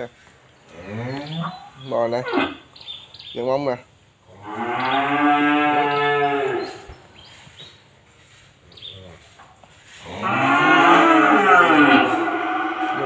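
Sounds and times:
calves mooing: 0:04.4 - 0:06.9, 0:10.0 - 0:13.0.

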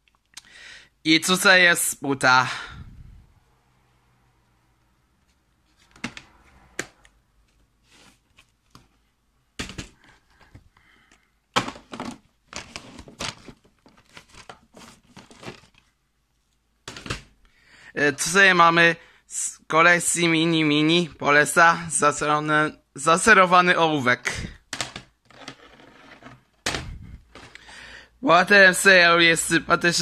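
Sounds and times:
plastic cases clicking and clacking: 0:05.8 - 0:07.1, 0:09.6 - 0:15.9, 0:16.9 - 0:17.4, 0:24.6 - 0:27.7.

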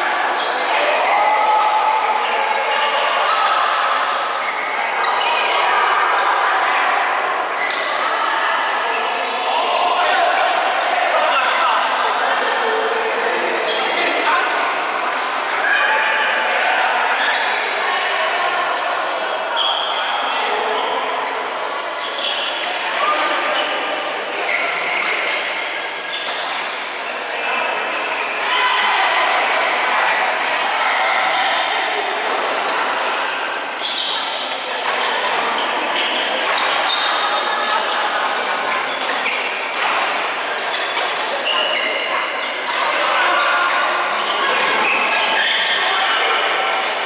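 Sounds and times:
noisy hall background: 0:00.0 - 0:47.0
shoes squeaking on court floor: 0:04.4 - 0:05.3, 0:23.4 - 0:27.2, 0:33.8 - 0:38.1, 0:38.7 - 0:39.7, 0:40.7 - 0:42.6, 0:44.1 - 0:46.9.

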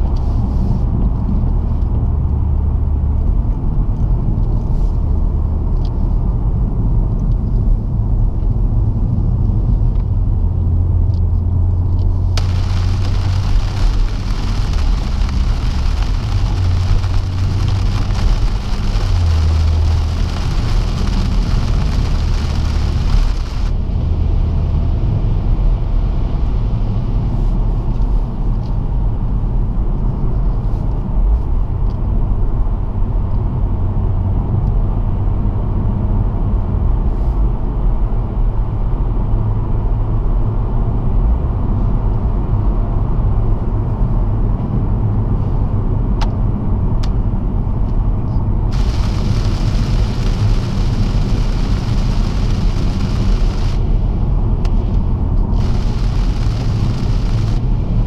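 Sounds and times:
tyre and road noise: 0:00.0 - 0:26.4, 0:45.8 - 0:58.0
car engine running: 0:10.3 - 0:24.0, 0:48.6 - 0:58.0
rain hissing on wet tarmac: 0:12.0 - 0:23.8, 0:48.7 - 0:54.1, 0:54.7 - 0:58.0.

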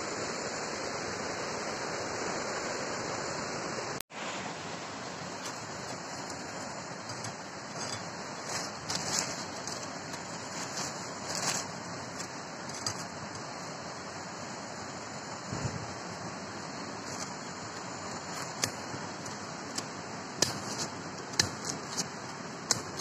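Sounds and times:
rushing background hiss: 0:00.0 - 0:23.0
dry bamboo leaves crackling: 0:05.1 - 0:15.1.

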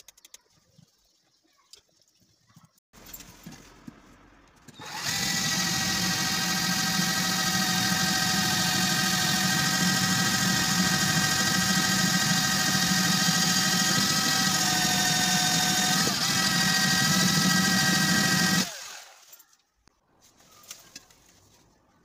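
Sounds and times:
cordless drill boring metal: 0:04.8 - 0:19.4.

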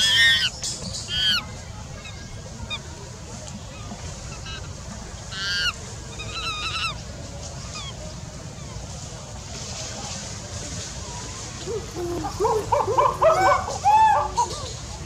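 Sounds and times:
high-pitched animal calls: 0:00.0 - 0:00.5, 0:01.1 - 0:01.5, 0:04.3 - 0:07.0.

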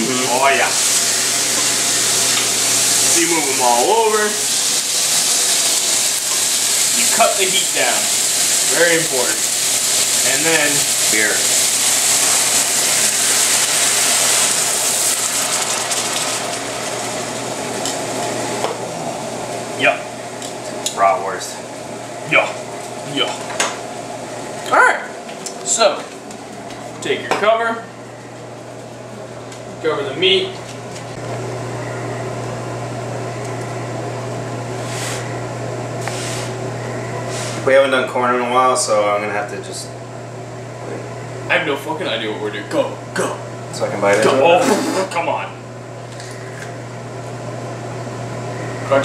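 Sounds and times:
liquid sizzling in hot pan: 0:00.2 - 0:18.7
steady low hum: 0:16.7 - 0:49.0.

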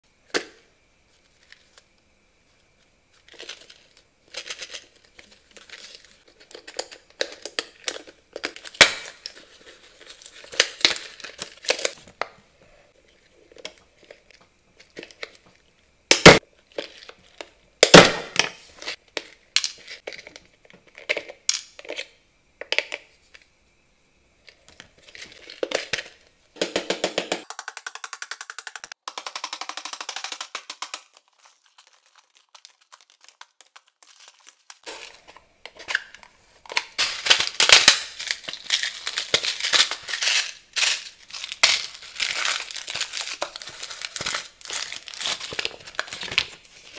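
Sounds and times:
packaging crinkling and rustling: 0:03.2 - 0:12.2, 0:29.8 - 0:46.9.

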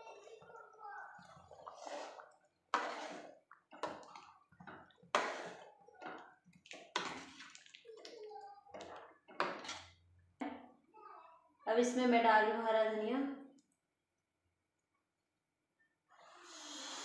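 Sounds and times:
ladle stirring liquid in metal pot: 0:00.0 - 0:10.3.

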